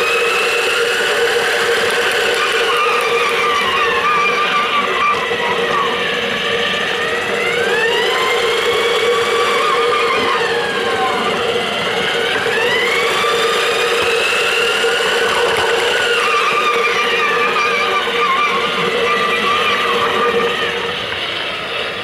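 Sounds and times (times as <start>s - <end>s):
toy train motor whining: 0.0s - 22.0s.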